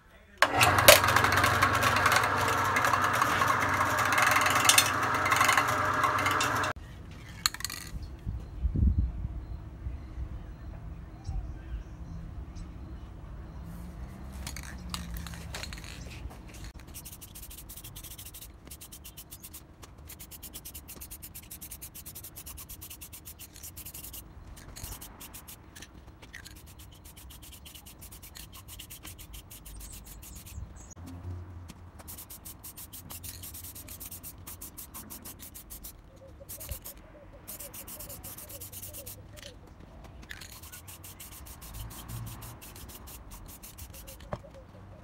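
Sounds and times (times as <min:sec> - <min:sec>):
aerosol can spraying: 0:16.8 - 0:24.2, 0:26.5 - 0:30.6, 0:32.0 - 0:39.2, 0:40.4 - 0:44.3.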